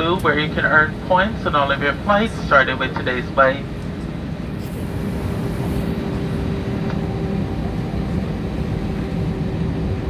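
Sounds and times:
airliner cabin rumble: 0.0 - 10.0
jet engines humming: 0.0 - 10.0
higher hum: 3.2 - 10.0.

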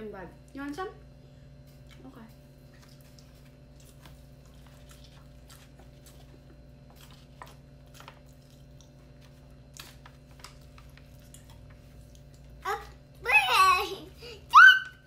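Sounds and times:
low steady hum: 0.0 - 15.0
person chewing: 2.6 - 12.6.

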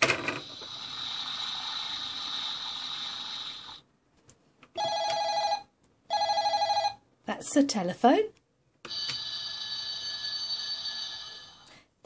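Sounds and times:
toy water-spray hiss: 0.6 - 3.8
ringing telephone tone: 4.8 - 7.0, 8.9 - 11.7.

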